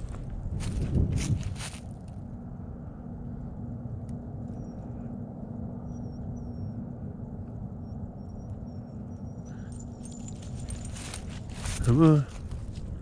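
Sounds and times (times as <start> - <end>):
faint steady hum: 0.0 - 13.0
low outdoor rumble: 0.0 - 13.0
faint high peeps: 5.8 - 6.9.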